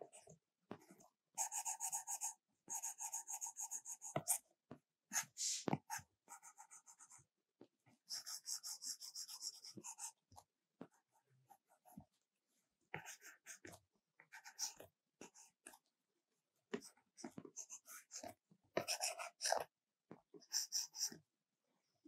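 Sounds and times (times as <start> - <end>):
stylus scratching on tablet screen: 0.1 - 4.4, 5.1 - 7.3, 8.1 - 10.2, 10.9 - 12.2, 13.0 - 15.9, 16.8 - 19.7, 20.4 - 21.2.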